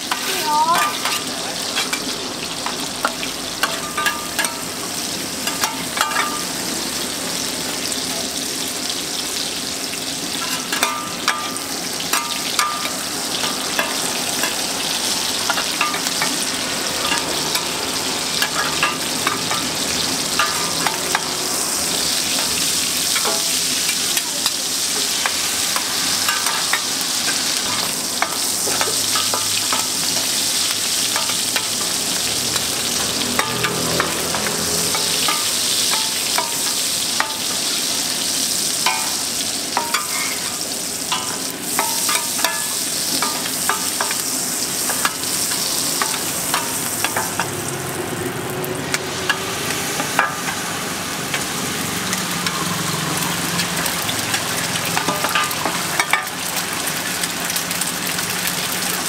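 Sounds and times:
metal spatulas scraping pan: 0.0 - 2.8, 10.4 - 14.6, 32.9 - 37.5, 39.8 - 47.6
shrimp sizzling in hot oil: 0.0 - 59.0.

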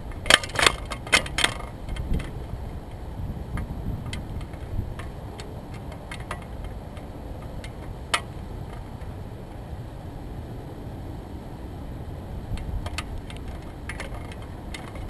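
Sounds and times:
wind buffeting microphone: 0.0 - 15.0
light clicks and taps: 0.2 - 9.1, 12.5 - 15.0.

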